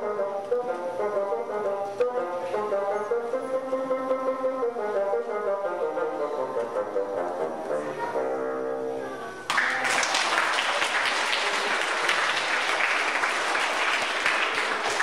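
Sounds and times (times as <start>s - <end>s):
audience applause: 9.5s - 15.0s.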